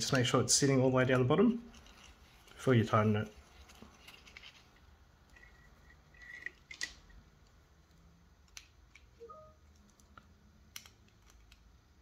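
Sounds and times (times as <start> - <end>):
pliers clicking and scraping metal: 3.6 - 7.2.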